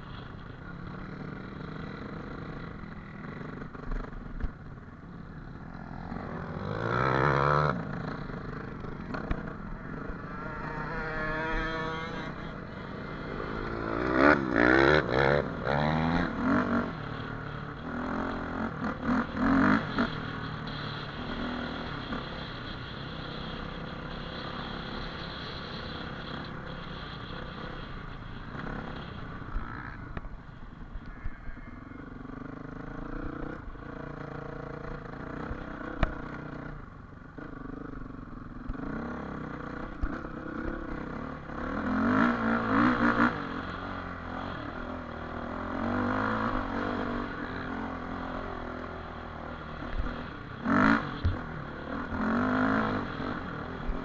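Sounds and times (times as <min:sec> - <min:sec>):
dirt bike engine revving: 0:05.6 - 0:30.1, 0:38.7 - 0:54.0.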